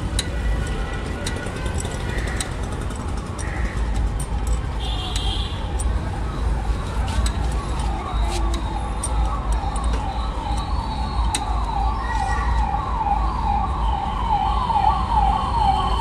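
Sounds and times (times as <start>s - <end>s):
low rumble of traffic: 0.0s - 16.0s
electronic siren yelping: 5.5s - 16.0s.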